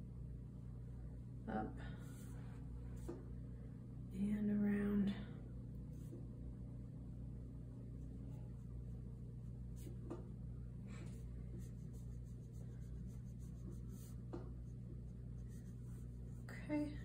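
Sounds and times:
steady low hum: 0.0 - 17.0
paintbrush scratching on canvas: 11.0 - 17.0.

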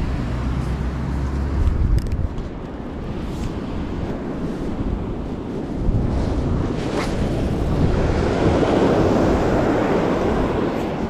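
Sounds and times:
wind buffeting microphone: 0.0 - 11.0
surf breaking on beach: 3.1 - 11.0.

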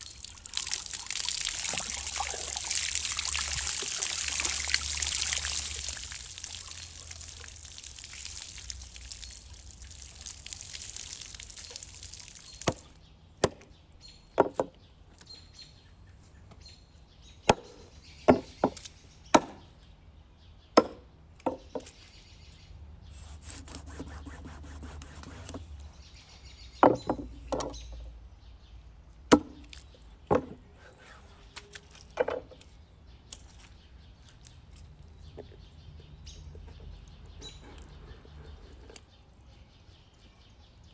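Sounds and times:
hatchet chopping fish on wood: 13.4 - 13.7, 19.4 - 19.6, 20.8 - 21.0, 29.3 - 29.6.

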